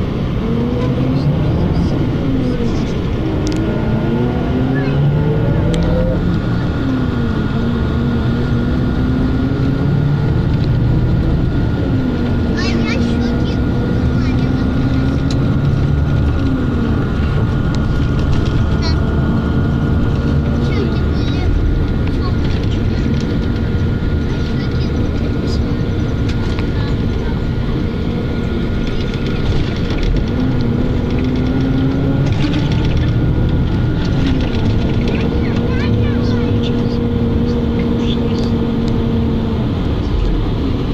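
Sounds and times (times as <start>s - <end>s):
rising humming tone: 0.0s - 22.2s
vehicle rumble from inside: 0.0s - 40.9s
rattles and clicks from car body: 10.3s - 39.0s.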